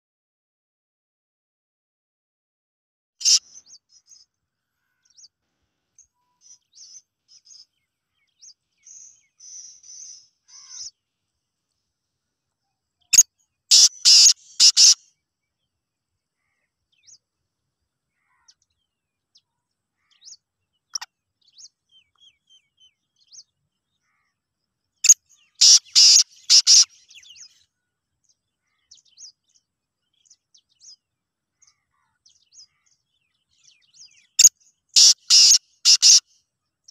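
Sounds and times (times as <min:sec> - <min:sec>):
bird calling: 0:03.2 - 0:03.8, 0:08.8 - 0:11.0, 0:13.1 - 0:15.0, 0:25.0 - 0:27.6, 0:33.6 - 0:36.3.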